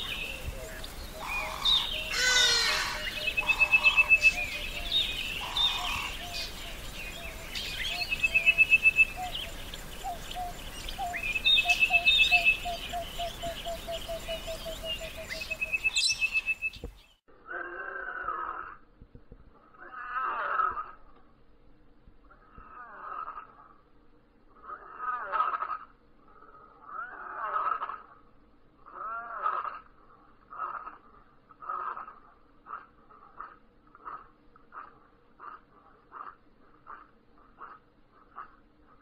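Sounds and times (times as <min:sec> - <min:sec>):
birds chirping: 0:00.0 - 0:17.2
drawn-out wavering bird calls: 0:00.0 - 0:18.8, 0:19.6 - 0:21.1, 0:22.2 - 0:23.8, 0:24.5 - 0:39.0.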